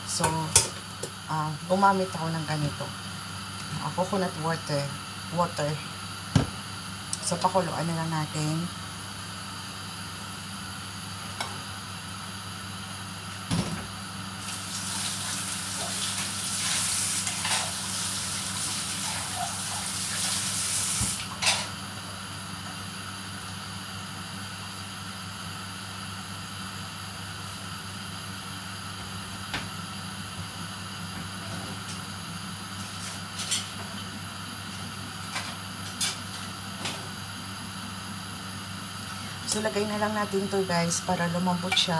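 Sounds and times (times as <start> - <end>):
water running from tap: 14.4 - 21.3.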